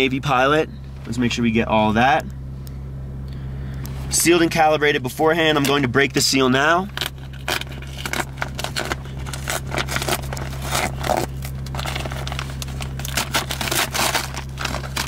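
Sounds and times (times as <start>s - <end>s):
steady low hum: 0.0s - 15.0s
package crinkling and tearing: 6.9s - 15.0s.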